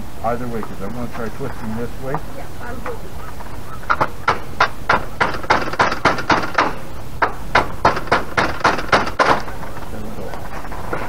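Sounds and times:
rapid knocks on awning hardware: 0:03.8 - 0:09.8.

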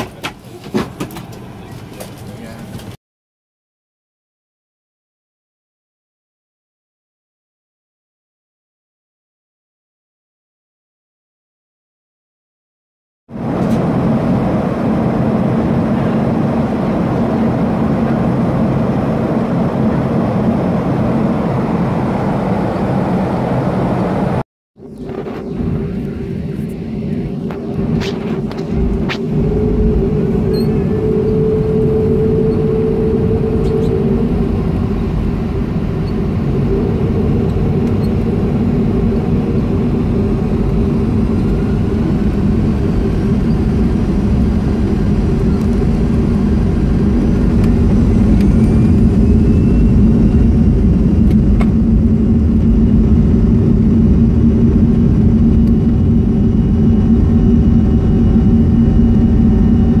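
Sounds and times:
jet engines droning with rising whine: 0:13.3 - 1:00.0.

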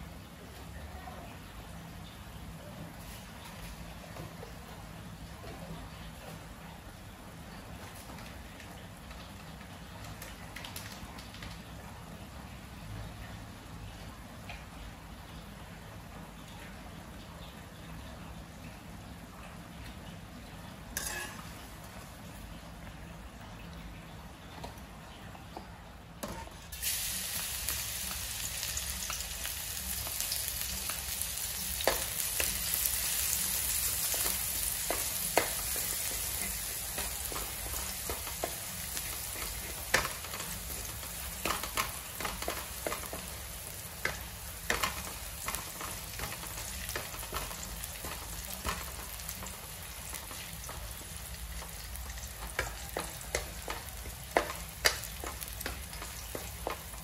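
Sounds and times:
garlic sizzling in a wok: 0:20.7 - 0:23.0, 0:26.2 - 0:57.0.

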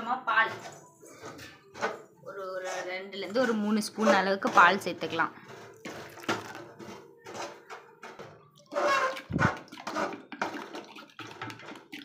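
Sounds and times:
wooden spoon stirring batter: 0:00.4 - 0:12.0
milk pouring into bowl: 0:05.8 - 0:06.6, 0:08.6 - 0:12.0.

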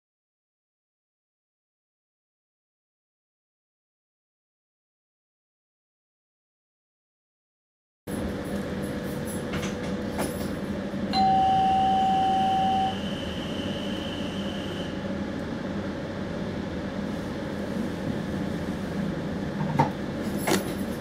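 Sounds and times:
train cab hum: 0:08.1 - 0:21.0
signal bell tone: 0:11.1 - 0:14.5.

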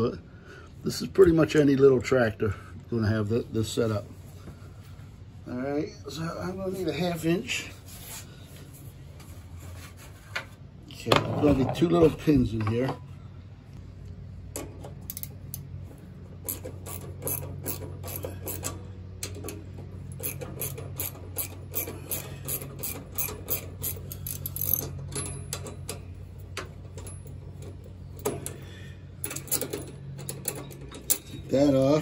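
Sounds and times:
steady low hum: 0:00.0 - 0:32.0
socket ratchet clicking: 0:14.6 - 0:15.7, 0:16.5 - 0:26.1.

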